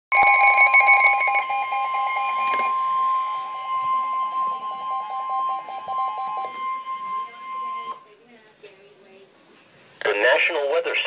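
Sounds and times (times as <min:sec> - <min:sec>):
rapid alarm beeping: 0:00.1 - 0:08.1
steady high tone: 0:00.1 - 0:08.2.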